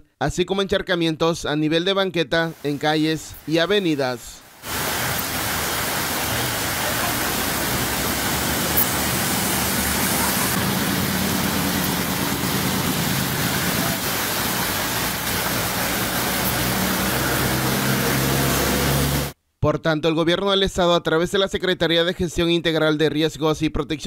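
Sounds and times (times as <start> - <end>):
heavy rain on flooded street: 4.5 - 19.4
cars driving through floodwater: 4.6 - 19.4.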